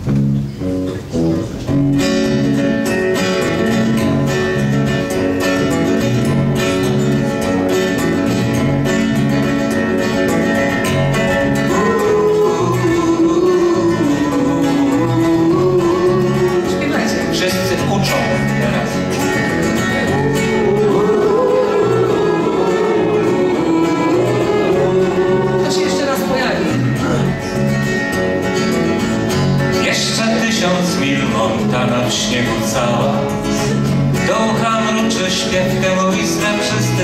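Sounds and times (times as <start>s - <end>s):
acoustic guitars: 0.0s - 37.0s
bass guitar: 0.0s - 37.0s
sustained melody line: 1.8s - 30.3s.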